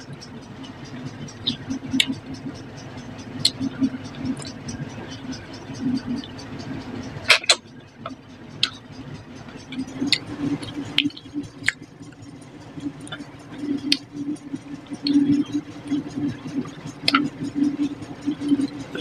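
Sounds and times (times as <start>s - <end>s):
mouth clicks and lip smacks: 3.4s - 8.8s.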